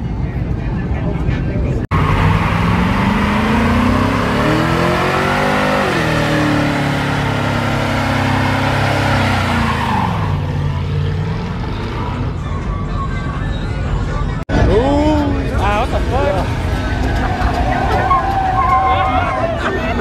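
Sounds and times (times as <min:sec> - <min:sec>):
car engine revving: 0:01.9 - 0:12.6.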